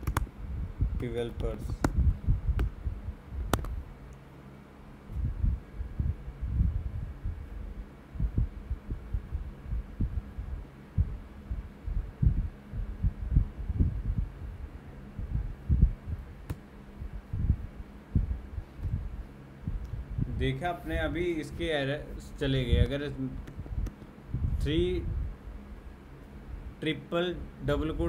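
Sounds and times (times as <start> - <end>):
sharp click: 0.0 - 0.3, 3.5 - 4.2
low steady hum: 0.0 - 28.0
keyboard typing thumps: 3.5 - 3.8.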